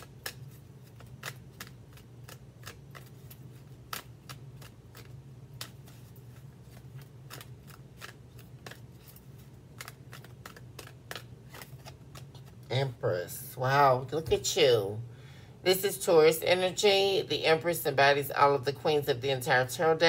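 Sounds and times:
cards being shuffled: 0.0 - 12.7
low steady hum: 0.0 - 20.0.

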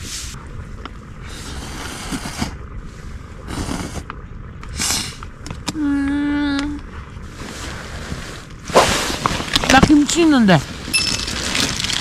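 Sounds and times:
noodles being slurped: 11.2 - 12.0.

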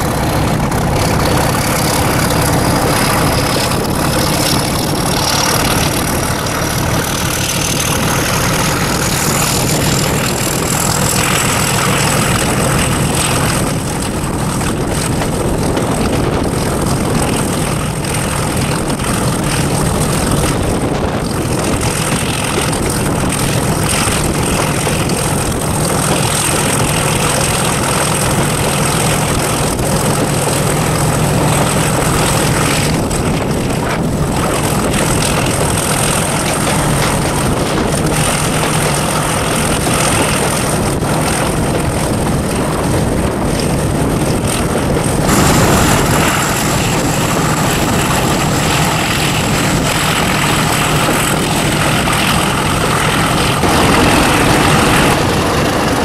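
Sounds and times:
diesel locomotive engine drone: 0.0 - 56.0
wind and running noise: 0.0 - 56.0
high whine: 44.5 - 56.0.

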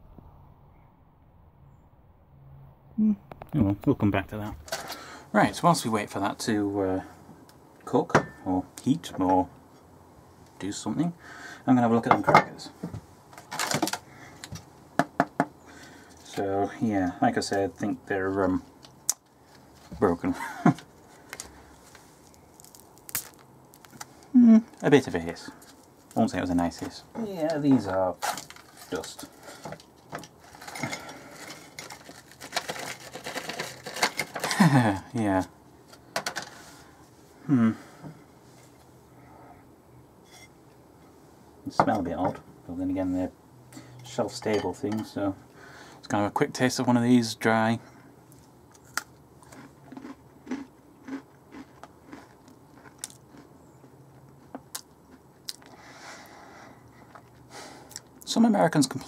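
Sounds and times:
crunchy cracker chewing: 20.8 - 24.3, 28.2 - 34.7, 48.3 - 55.8
foil pouch crinkling: 21.2 - 24.3, 28.2 - 29.4, 30.0 - 34.6
crackers clattering on plate: 22.5 - 24.1, 27.6 - 34.8.

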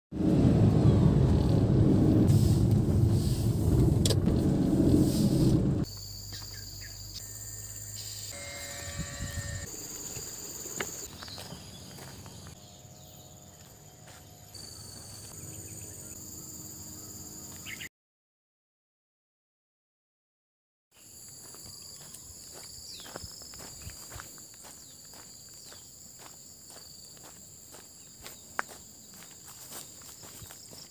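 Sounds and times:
car interior road noise: 0.2 - 5.9
insects buzzing and chirping: 5.8 - 17.9, 21.0 - 30.9.

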